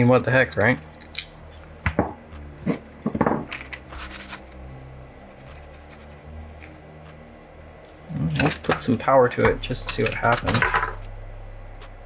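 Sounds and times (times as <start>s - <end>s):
steady low hum: 0.0s - 12.0s
paper towel rubbing plastic: 3.9s - 4.5s, 5.2s - 7.2s.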